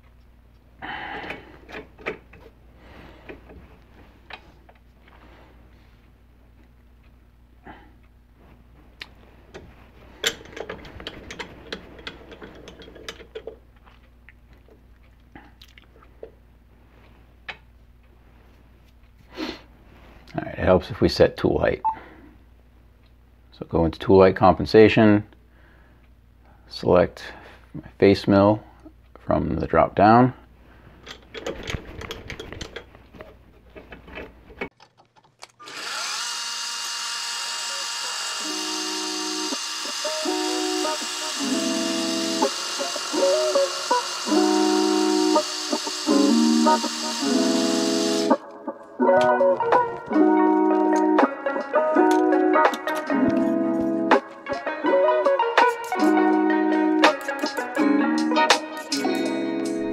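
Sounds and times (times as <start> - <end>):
faint steady hum: 0.0 - 34.7
handwheel clicking and rattling: 10.2 - 13.6
spindle motor whine: 35.6 - 48.4.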